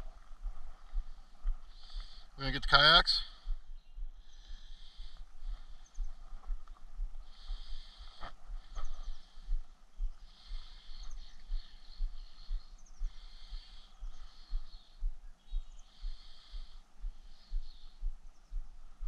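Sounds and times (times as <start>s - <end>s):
wind rumbling on microphone: 3.5s - 13.3s.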